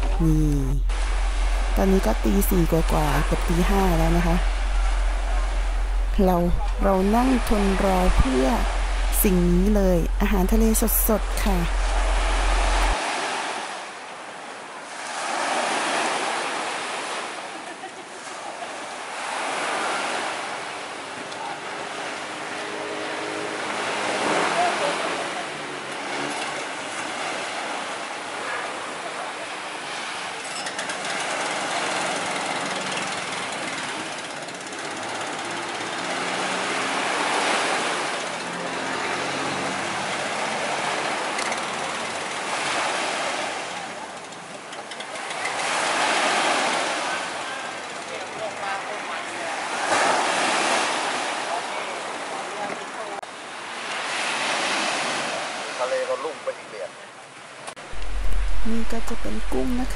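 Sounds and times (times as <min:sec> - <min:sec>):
faint low hum: 0:00.0 - 0:13.0
small waves breaking on shore: 0:00.9 - 0:06.1, 0:07.2 - 0:58.7.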